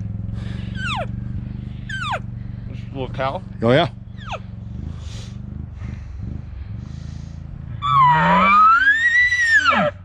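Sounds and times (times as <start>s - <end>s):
elk call through bugle tube: 7.8s - 10.0s.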